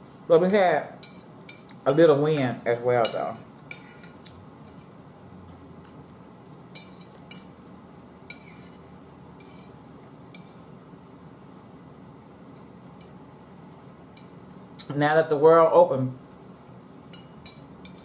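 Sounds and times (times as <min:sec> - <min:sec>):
fork clinking on plate: 0:06.7 - 0:07.5, 0:09.4 - 0:09.8.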